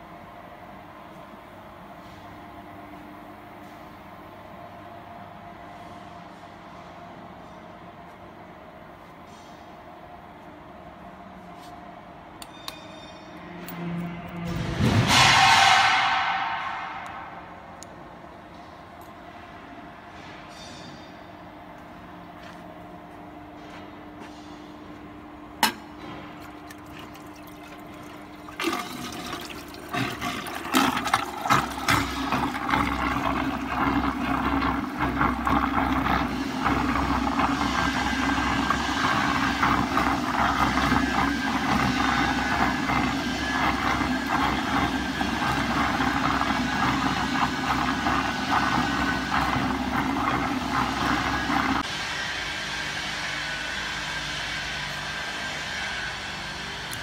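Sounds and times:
mixer motor hum: 26.3 - 51.9
liquid churning and splashing: 26.4 - 51.8.

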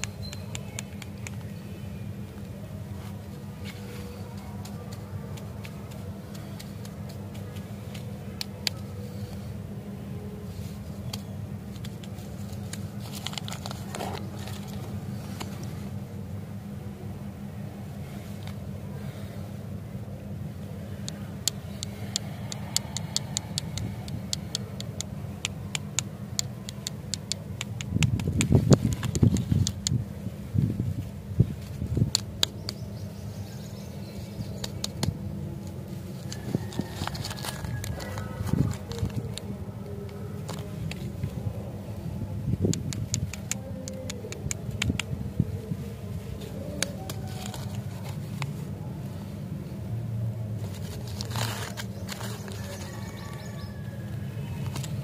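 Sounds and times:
steady low hum: 0.0 - 55.0
plastic wrapper crinkling: 11.8 - 14.9, 36.2 - 41.2, 46.8 - 48.6, 50.6 - 53.0.

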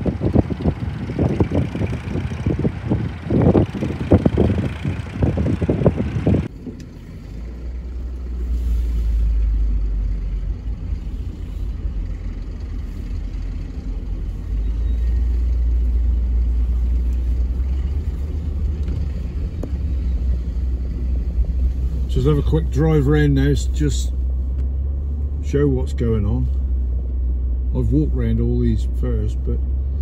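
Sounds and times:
wind buffeting microphone: 0.0 - 6.8
car cabin rumble: 0.0 - 30.0.

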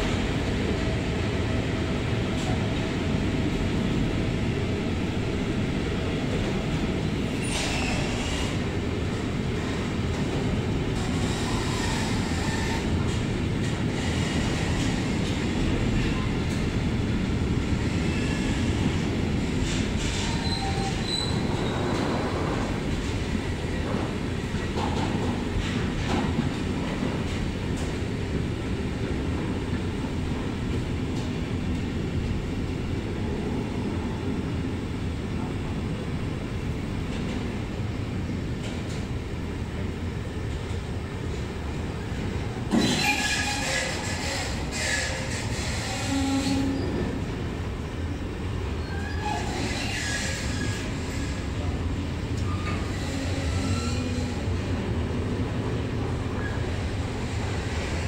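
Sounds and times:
freight train wheels rumbling on rails: 0.0 - 58.0
train squeaks and clicks: 7.3 - 8.7, 10.9 - 16.6, 19.6 - 23.2, 23.8 - 28.0, 42.7 - 47.2, 48.7 - 51.7, 52.3 - 54.8, 56.3 - 58.0.

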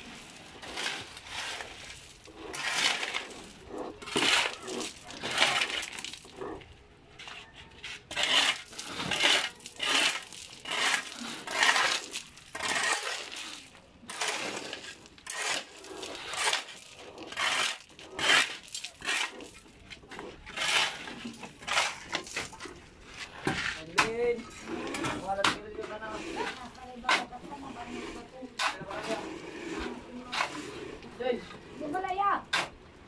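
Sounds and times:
gravel clattering: 0.0 - 6.8, 8.4 - 27.9
shovels scraping concrete: 0.0 - 33.0.

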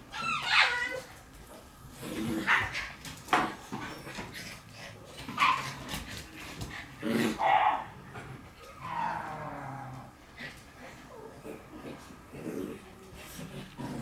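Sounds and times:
puppies barking and yipping: 0.1 - 1.1.

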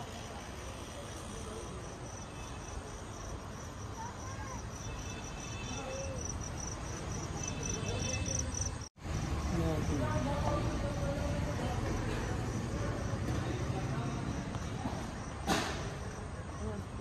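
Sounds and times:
faint distant voices: 0.0 - 17.0
cricket chirping: 0.2 - 10.3.

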